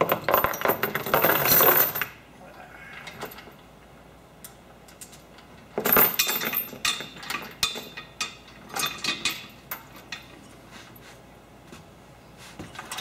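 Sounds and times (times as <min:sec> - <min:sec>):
metal chain clinking and rattling: 0:00.0 - 0:02.2, 0:05.8 - 0:10.4.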